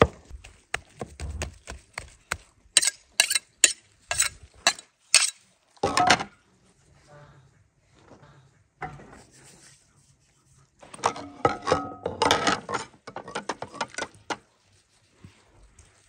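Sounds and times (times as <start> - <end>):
utensils clattering against metal pot: 11.0 - 14.5.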